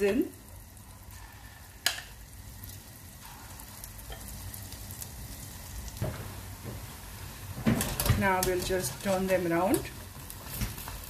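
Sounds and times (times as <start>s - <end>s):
frying in hot oil sizzle: 0.0s - 11.0s.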